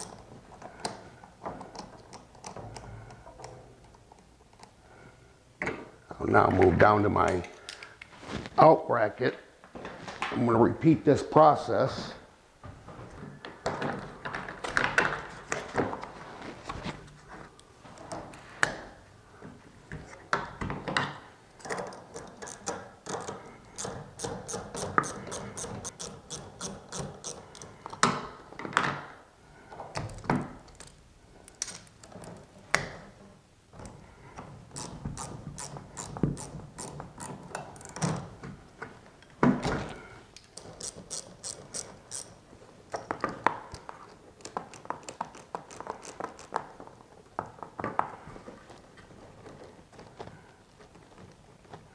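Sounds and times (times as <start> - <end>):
ratchet wrench pawl clicking: 40.8 - 42.3.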